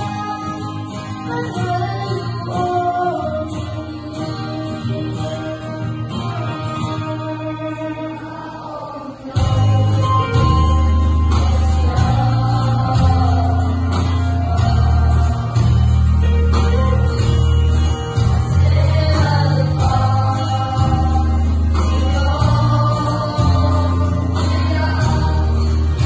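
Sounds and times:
children's choir singing: 0:00.0 - 0:26.0
steady bass line: 0:09.4 - 0:26.0.

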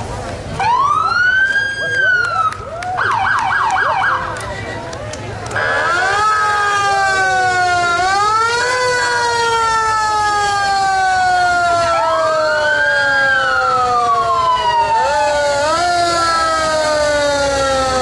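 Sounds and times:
fire truck siren winding: 0:05.5 - 0:18.0.

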